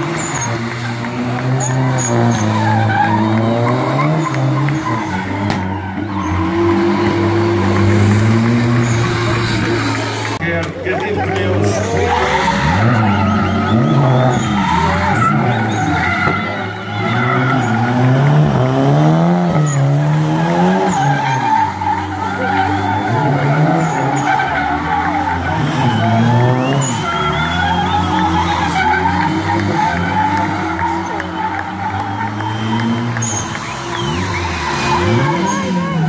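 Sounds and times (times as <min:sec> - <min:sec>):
car engines revving hard: 0:00.0 - 0:36.0
tyres screeching: 0:00.0 - 0:36.0.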